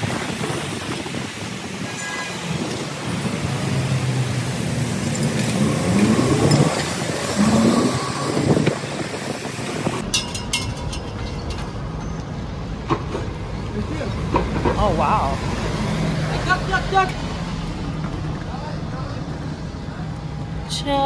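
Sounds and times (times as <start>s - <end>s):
vehicle engines running: 0.0s - 21.0s
engine revving up: 3.4s - 9.0s.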